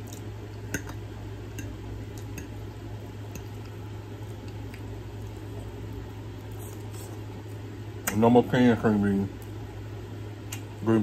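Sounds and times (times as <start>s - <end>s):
wet chewing: 0.0s - 8.2s
steady low hum: 0.0s - 11.0s.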